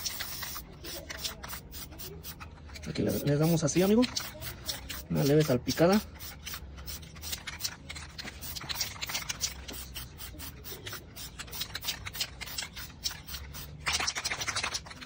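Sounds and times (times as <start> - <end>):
spray can hissing: 0.0 - 14.8.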